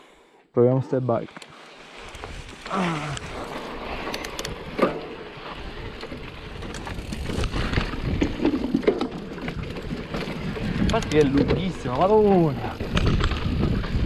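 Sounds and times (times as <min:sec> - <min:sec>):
bike chain and frame rattling: 0:01.9 - 0:14.0
tyres rumbling over dirt: 0:02.0 - 0:14.0
wind buffeting microphone: 0:05.7 - 0:14.0.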